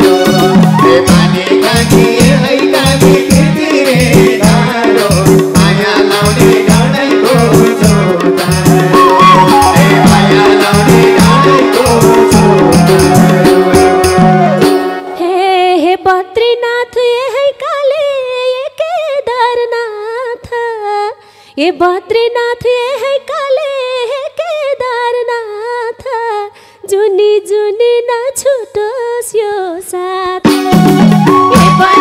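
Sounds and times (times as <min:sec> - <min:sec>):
band instruments: 0:00.0 - 0:15.5, 0:30.4 - 0:32.0
woman singing unaccompanied: 0:08.6 - 0:32.0.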